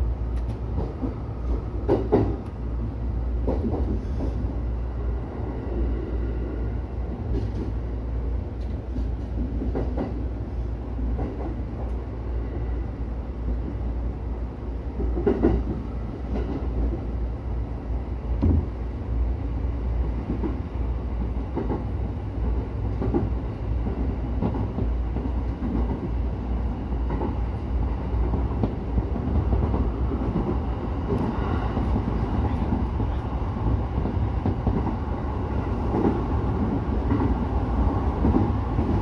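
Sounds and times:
train low rumble: 0.0s - 39.0s
wheels clacking on rails: 0.4s - 2.6s, 3.4s - 4.6s, 8.5s - 10.4s, 11.0s - 12.0s, 14.9s - 17.2s, 20.0s - 39.0s.

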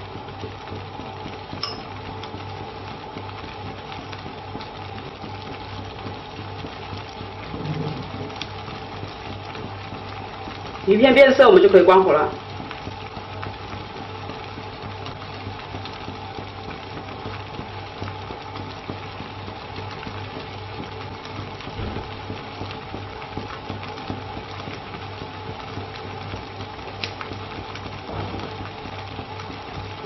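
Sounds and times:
porridge bubbling: 0.0s - 30.0s
gas flame hissing: 7.3s - 9.8s, 26.8s - 29.5s.

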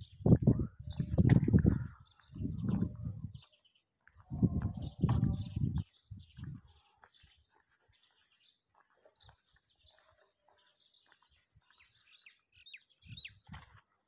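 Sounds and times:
soft low thumps: 0.0s - 3.4s, 4.1s - 6.8s.

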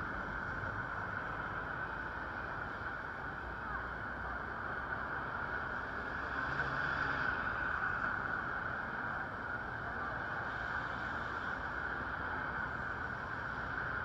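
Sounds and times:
bus passing: 0.0s - 14.0s
tyres hissing on wet road: 3.6s - 8.3s, 10.2s - 14.0s
cars passing on wet road: 4.0s - 14.0s.

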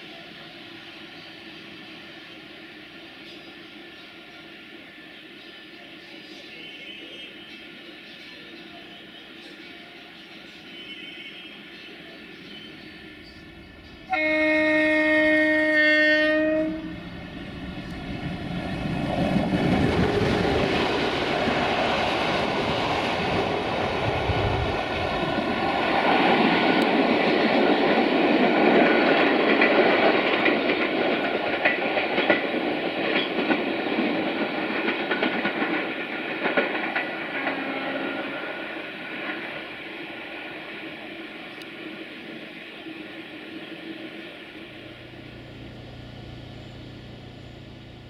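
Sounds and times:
train horn blast: 14.1s - 17.1s, 37.3s - 38.6s
train wheels clicking on rail joints: 25.8s - 37.7s
locomotive engine rumble: 44.6s - 48.0s.

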